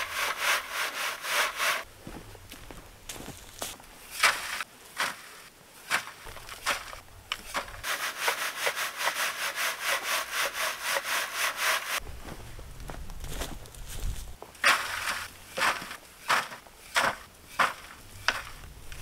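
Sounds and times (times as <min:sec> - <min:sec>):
shovel scraping and throwing soil: 0:00.0 - 0:01.9, 0:03.3 - 0:12.0, 0:14.5 - 0:19.0
sieve of soil rasping: 0:00.0 - 0:01.9, 0:04.0 - 0:12.0, 0:14.6 - 0:19.0.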